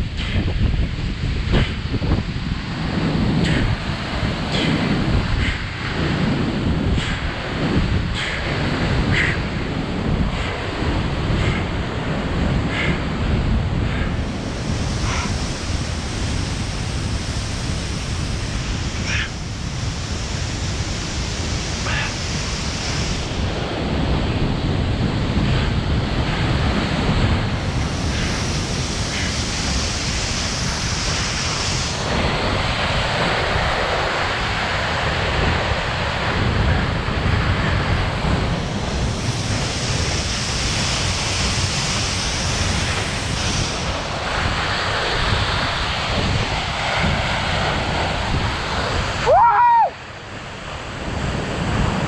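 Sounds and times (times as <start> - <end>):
wind buffeting microphone: 0.0 - 52.0
waterfall rushing: 13.9 - 52.0.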